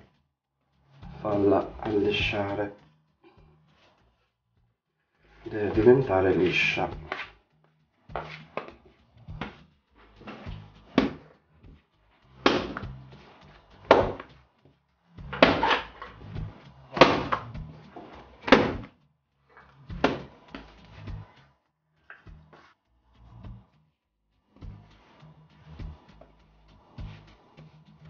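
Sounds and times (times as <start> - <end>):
dough rubbing and pressing: 0.0 - 28.0
dough slapping on counter: 10.3 - 11.2, 12.3 - 13.0, 13.8 - 14.4.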